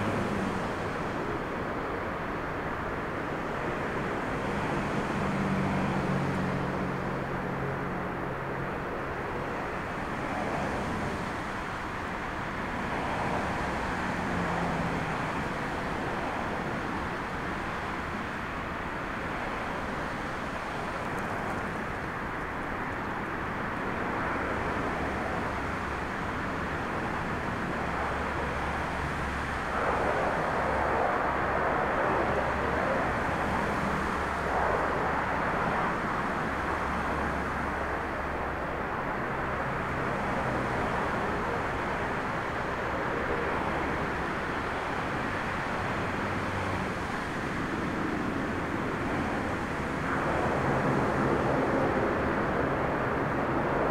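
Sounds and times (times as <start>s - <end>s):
jet engine rumble: 0.0s - 53.9s
propeller hum: 12.7s - 53.9s.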